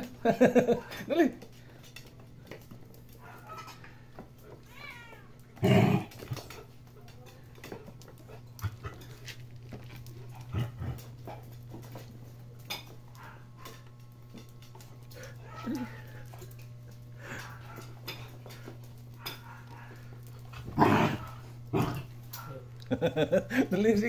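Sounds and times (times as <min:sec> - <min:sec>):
steady low hum: 0:00.0 - 0:24.0
dog bark: 0:03.2 - 0:03.8, 0:19.2 - 0:20.1.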